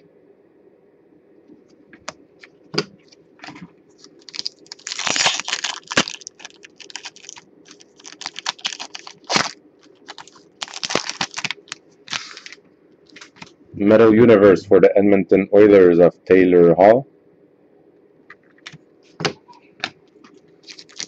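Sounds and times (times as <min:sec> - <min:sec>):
foil wrapper tearing and crinkling: 0:03.4 - 0:13.5, 0:20.6 - 0:21.0.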